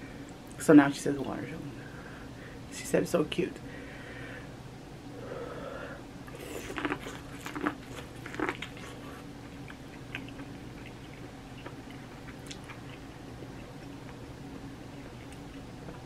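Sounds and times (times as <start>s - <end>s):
teeth crunching corn: 6.3s - 16.0s
chewing with small clicks: 6.6s - 16.0s.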